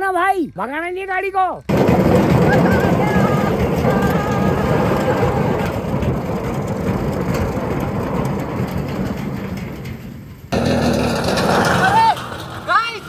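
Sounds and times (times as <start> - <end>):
motorcycle engine running: 1.7 - 9.2
tyre and road noise: 1.7 - 13.0.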